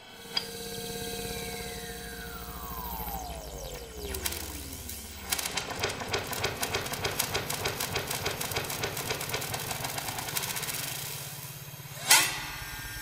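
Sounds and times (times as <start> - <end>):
steady low tone: 0.0 - 5.7
electronic clicks and ticks: 3.0 - 10.4.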